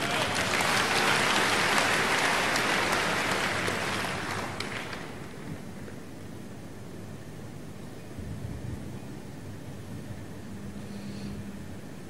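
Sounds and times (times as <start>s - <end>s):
congregation applauding: 0.0s - 5.5s.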